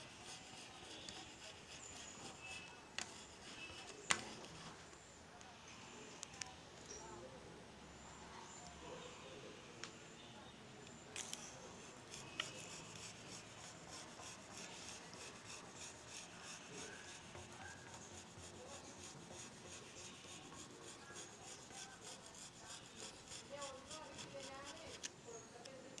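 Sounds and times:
scraper scraping wet glass: 0.0 - 4.6, 11.2 - 25.1.

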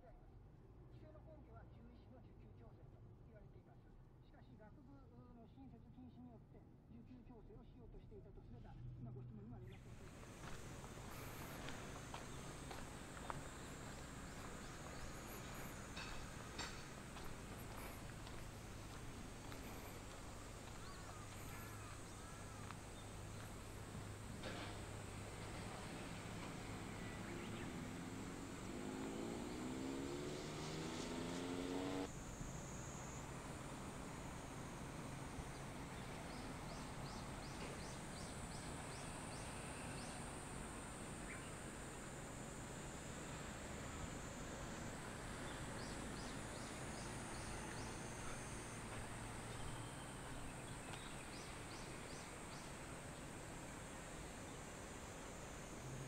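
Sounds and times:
outdoor background noise: 0.0 - 56.0
high insect drone: 9.9 - 56.0
vehicle engine pitch climbing: 10.2 - 34.7.

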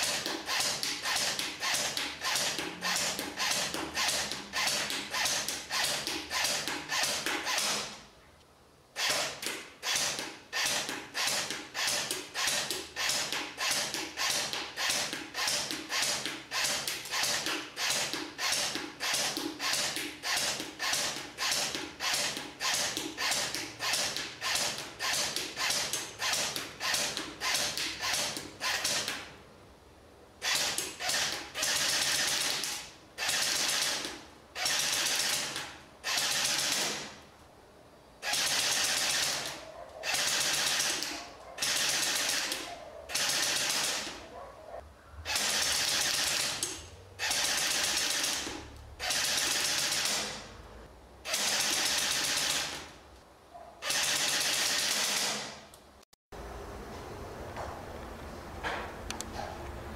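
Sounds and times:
airsoft rifle automatic fire: 0.0 - 8.0, 9.0 - 29.2, 30.4 - 37.2, 38.2 - 44.2, 45.3 - 50.5, 51.2 - 52.9, 53.8 - 55.6
airsoft rifle single shots: 38.2 - 44.2.

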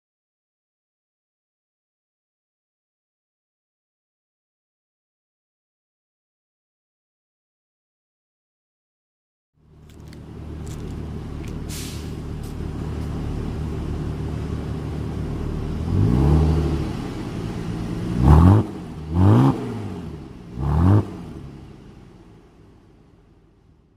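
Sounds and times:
car exhaust idling and revving: 9.6 - 23.9.

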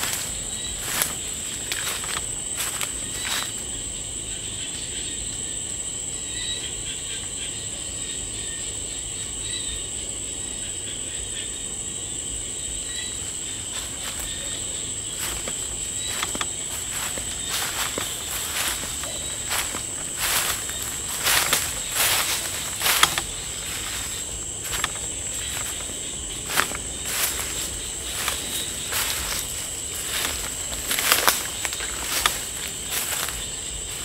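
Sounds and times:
footsteps crunching on dry leaves: 0.0 - 3.8, 13.0 - 34.0
crickets chirping: 0.0 - 34.0.

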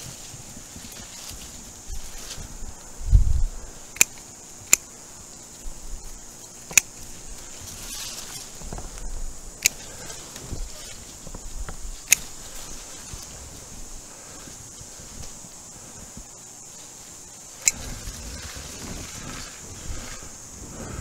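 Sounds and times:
garden clippers snipping: 3.9 - 4.9, 6.6 - 11.0, 11.6 - 12.5, 17.6 - 17.8.

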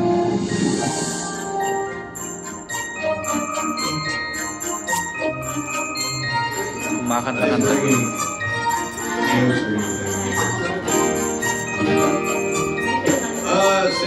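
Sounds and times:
christmas music: 0.0 - 14.0
sleigh bells shaking: 0.9 - 14.0.

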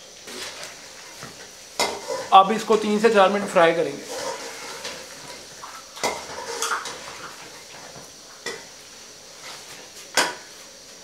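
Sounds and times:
faint oil sizzle: 0.0 - 11.0
metal skimmer scraping a pan: 1.8 - 2.4, 3.9 - 7.4.

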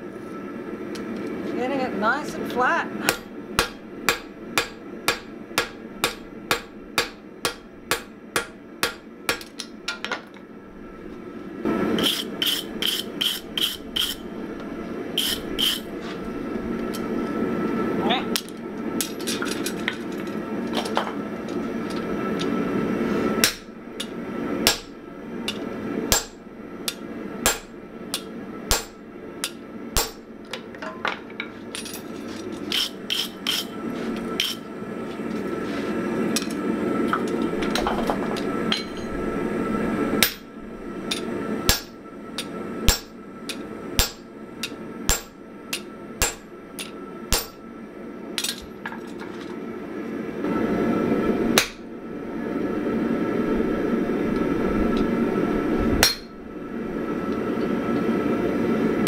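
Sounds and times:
hammer striking steel on anvil: 3.1 - 10.0, 12.0 - 14.2, 15.2 - 15.9, 23.4 - 30.3, 40.2 - 40.5, 41.1 - 47.6, 51.6 - 51.8, 56.0 - 56.3.

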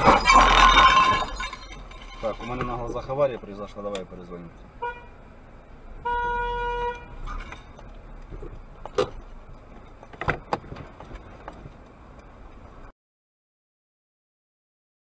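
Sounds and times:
car horn: 4.8 - 5.2, 6.0 - 7.3.

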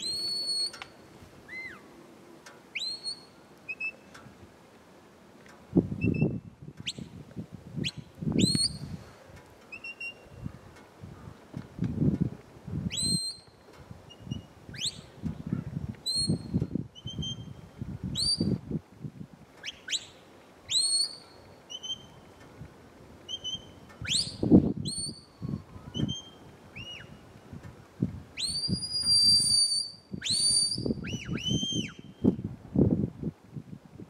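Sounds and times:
shepherd's whistle commands: 0.0 - 0.8, 2.8 - 4.0, 7.8 - 8.8, 9.7 - 10.3, 12.9 - 13.5, 16.0 - 17.6, 20.7 - 22.2, 23.3 - 25.3, 25.9 - 27.2, 28.4 - 32.4.

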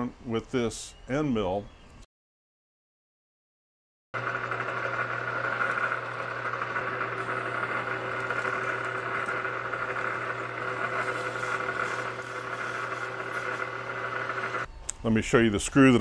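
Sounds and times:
milling machine humming and whining: 4.2 - 14.7.

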